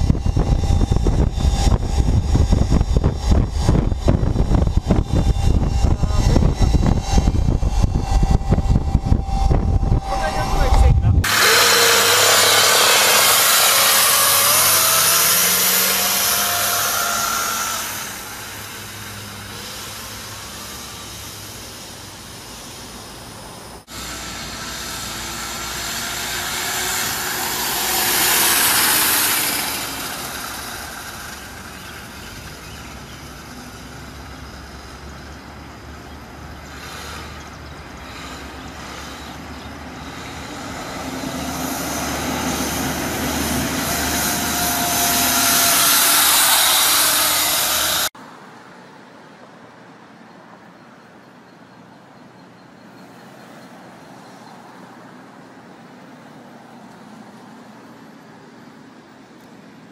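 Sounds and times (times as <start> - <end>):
tyre and wind noise: 0.0 - 19.2
electric motor whine: 0.0 - 23.3, 23.9 - 35.4, 36.6 - 48.2.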